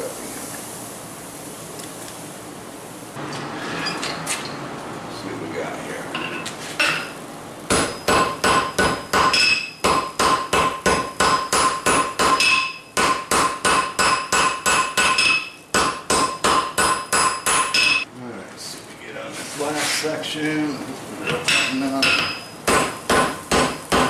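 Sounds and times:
hammer striking hot steel on anvil: 0:06.2 - 0:18.1, 0:21.2 - 0:24.0
anvil ringing: 0:11.2 - 0:18.0.

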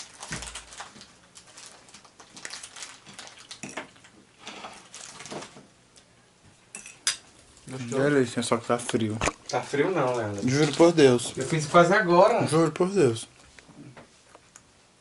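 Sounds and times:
cutlery clinking on plates: 0:06.7 - 0:07.2.

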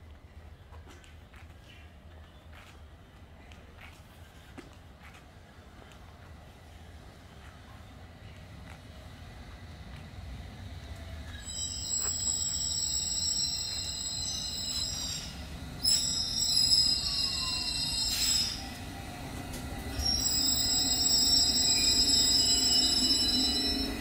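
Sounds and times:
train rumbling: 0:00.0 - 0:24.0
brakes squealing: 0:11.3 - 0:18.9.

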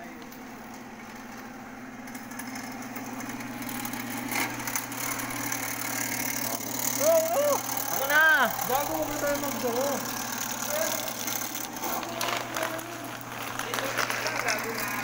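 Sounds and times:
drain cleaning machine motor humming: 0:00.0 - 0:15.0.

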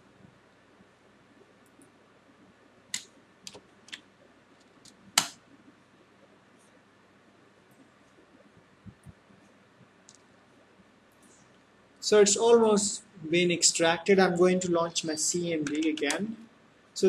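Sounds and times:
faint steady hiss: 0:00.0 - 0:17.0
keyboard and mouse clicks: 0:15.6 - 0:16.2.

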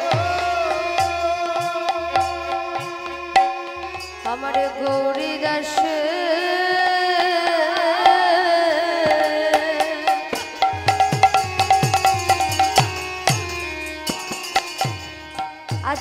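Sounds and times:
person singing wavering vocal: 0:00.0 - 0:10.4.

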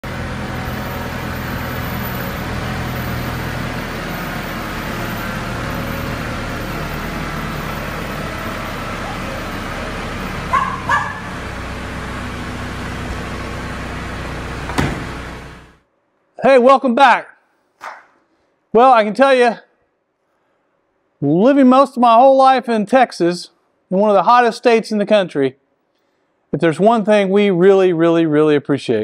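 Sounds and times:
tractor engine running: 0:00.0 - 0:15.8
dog barking: 0:10.5 - 0:11.3.

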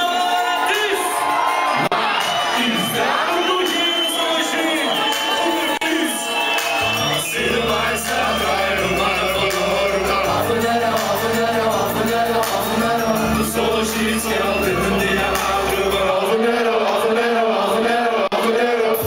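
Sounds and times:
voices chanting: 0:06.8 - 0:19.0
deep bass line: 0:07.3 - 0:16.1.

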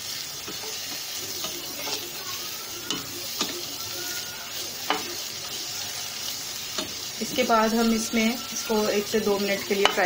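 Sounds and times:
chicken sizzling in hot oil: 0:00.0 - 0:10.0
spatula clicking against pan: 0:04.8 - 0:05.1, 0:09.7 - 0:10.0.

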